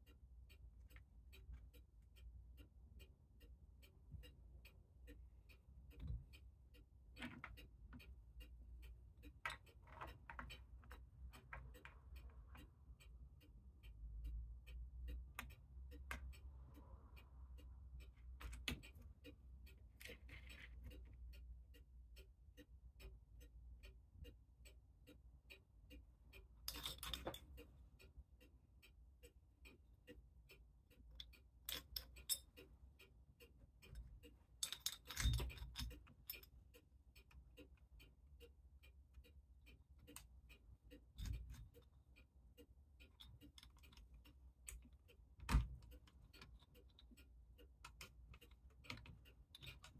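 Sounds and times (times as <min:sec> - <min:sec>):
clock ticking quickly: 0:00.0 - 0:49.9
metal parts clinking: 0:26.7 - 0:27.5, 0:31.7 - 0:32.5, 0:34.6 - 0:36.5.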